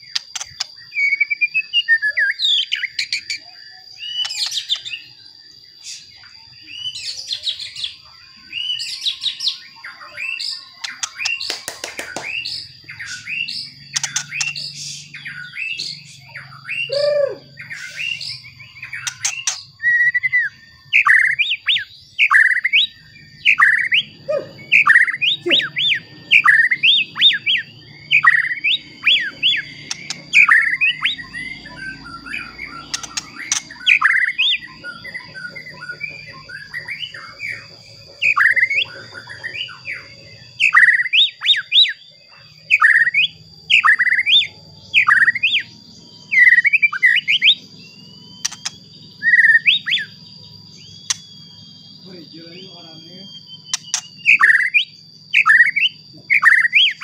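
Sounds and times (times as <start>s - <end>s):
bird singing whistled phrases: 0.0s - 57.0s.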